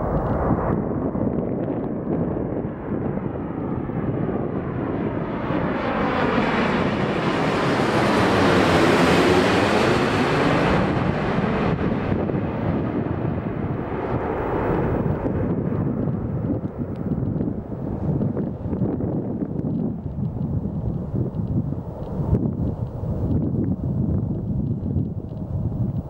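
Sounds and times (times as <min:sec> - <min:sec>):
airliner jet noise overhead: 0:00.0 - 0:26.0
wind buffeting microphone: 0:00.0 - 0:26.0.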